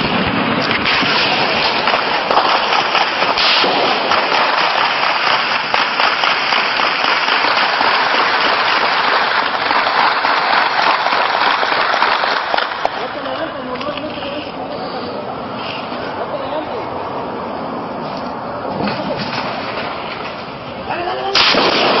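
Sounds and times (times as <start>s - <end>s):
sustained gunfire: 0.0s - 12.9s, 21.4s - 22.0s.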